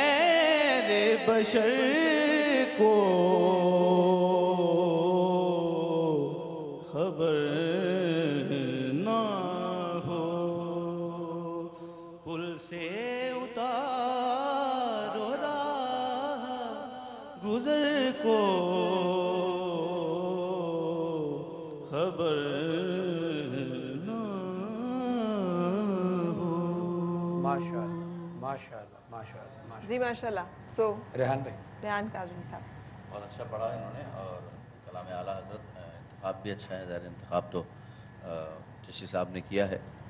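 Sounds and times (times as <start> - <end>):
man singing unaccompanied: 0.0 - 28.9.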